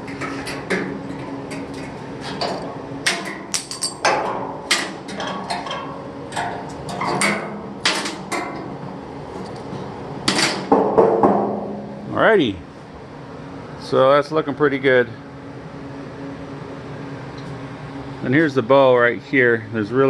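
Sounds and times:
hammer striking metal: 0:10.4 - 0:12.0.

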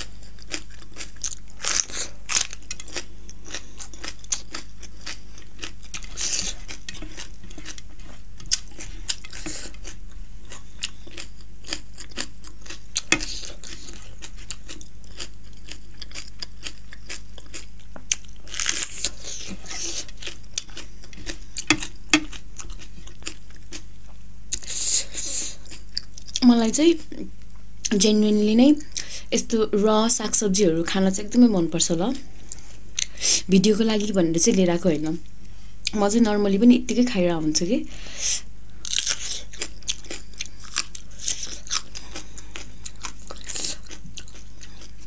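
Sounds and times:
wet chewing: 0:00.0 - 0:23.8, 0:38.9 - 0:45.0.

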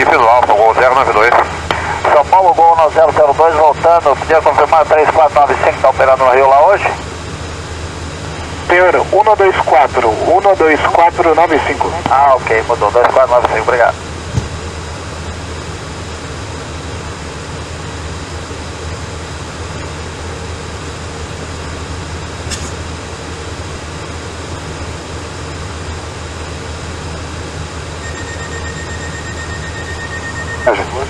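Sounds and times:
radio hiss and hum: 0:00.0 - 0:07.2, 0:08.2 - 0:19.0, 0:30.4 - 0:31.0.

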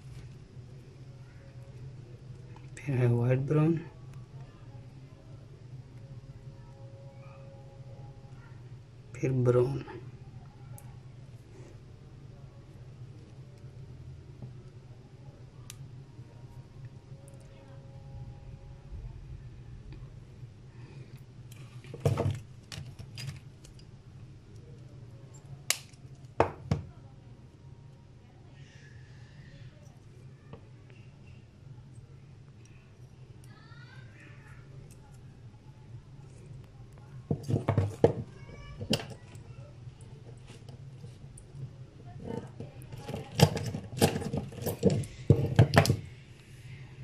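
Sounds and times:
low steady hum: 0:00.0 - 0:47.0
small clicks and rustles: 0:21.1 - 0:24.0, 0:36.2 - 0:46.2
crimping tool snaps: 0:25.7 - 0:26.0.

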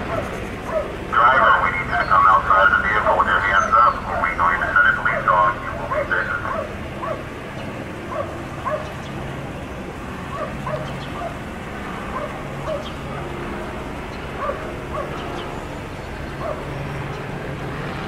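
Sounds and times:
dog yelping: 0:00.0 - 0:01.0, 0:05.9 - 0:07.3, 0:08.1 - 0:09.0, 0:10.3 - 0:11.4, 0:12.1 - 0:13.0, 0:14.4 - 0:15.3, 0:16.4 - 0:16.7
steady low hum: 0:00.0 - 0:18.0.

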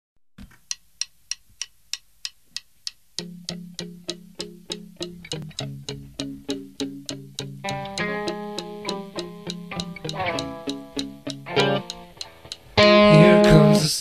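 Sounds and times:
ticking click beat: 0:00.4 - 0:14.0
plucked guitar and bass: 0:03.2 - 0:14.0.

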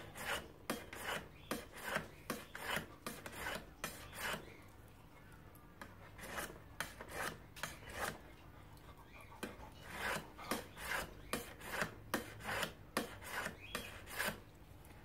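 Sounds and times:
knife rasping on sharpener: 0:00.0 - 0:04.5, 0:06.2 - 0:08.2, 0:09.4 - 0:14.4.

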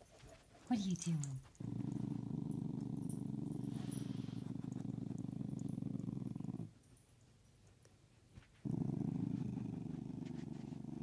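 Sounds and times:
dog growling: 0:01.5 - 0:06.8, 0:08.6 - 0:11.0.

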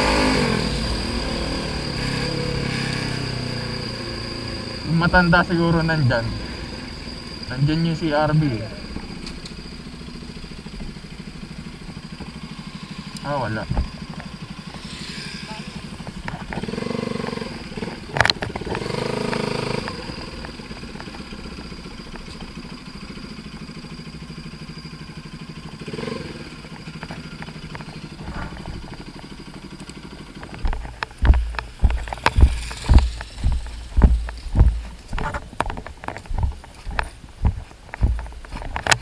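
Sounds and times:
motorcycle engine running: 0:00.0 - 0:39.0
heavy thumps: 0:30.6 - 0:39.0.

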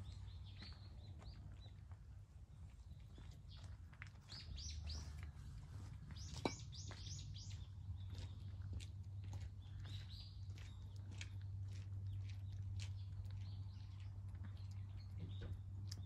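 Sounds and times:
low steady hum: 0:00.0 - 0:16.0
small birds chirping: 0:00.0 - 0:16.0.

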